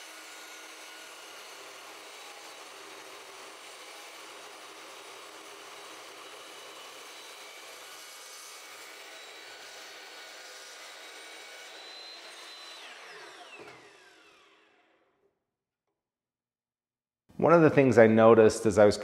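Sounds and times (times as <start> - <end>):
chop saw cutting metal: 0.0 - 15.0
saw motor winding down: 0.0 - 15.2.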